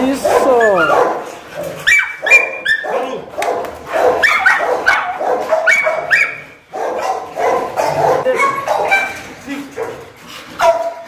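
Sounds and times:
dogs barking and yelping: 0:00.0 - 0:11.0.

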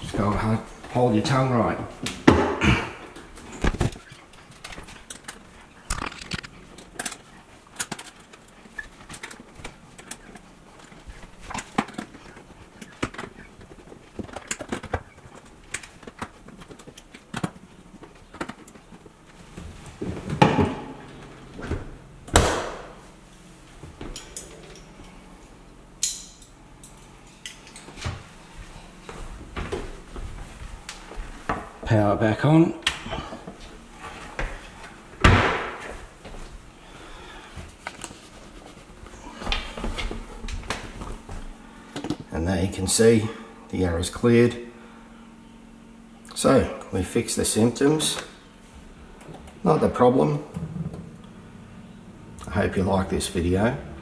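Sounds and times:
dishwasher door and racks rattling: 0:19.9 - 0:22.8.

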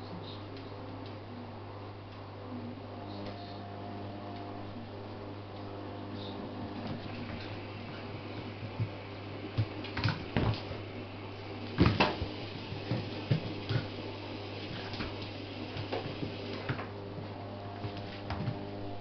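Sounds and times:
steady low hum: 0:00.0 - 0:19.0
dogs scuffling on hard floor: 0:06.8 - 0:10.8, 0:11.7 - 0:14.0, 0:14.6 - 0:18.7.

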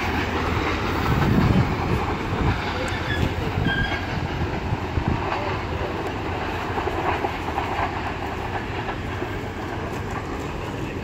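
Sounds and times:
train wheels clattering on rails: 0:00.0 - 0:11.0
faint high squeal: 0:02.8 - 0:04.1.

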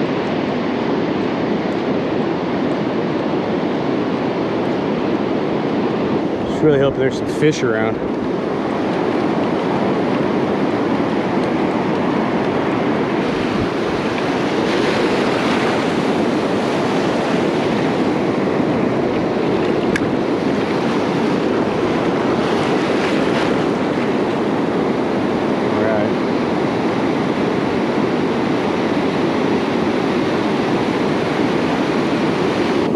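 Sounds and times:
ocean waves breaking on beach: 0:00.0 - 0:32.9
wind on microphone: 0:00.0 - 0:32.9.

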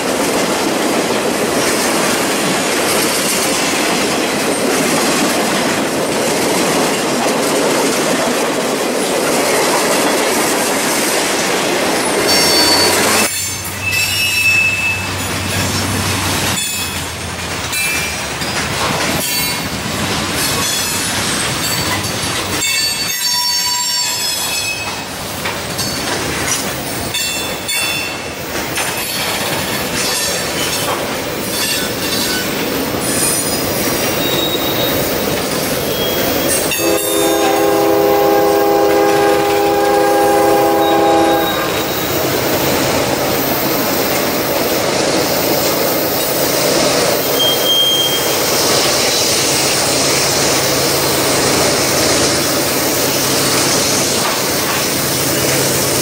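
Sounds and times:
high-pitched squeals: 0:12.0 - 0:15.3, 0:47.3 - 0:50.0
locomotive engines rumbling: 0:25.0 - 0:56.0
train horn chord: 0:36.7 - 0:41.9.

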